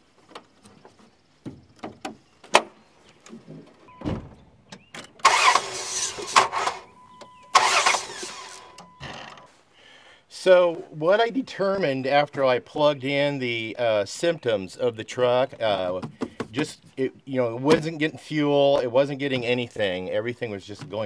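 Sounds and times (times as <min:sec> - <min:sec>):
faint steady high tone: 0:06.9 - 0:07.6.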